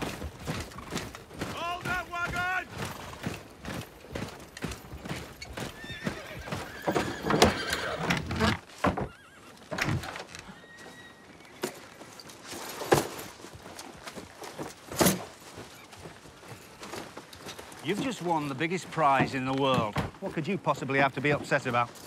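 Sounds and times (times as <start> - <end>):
hooves clopping: 0.0 - 22.0
horse neighing: 5.5 - 11.8.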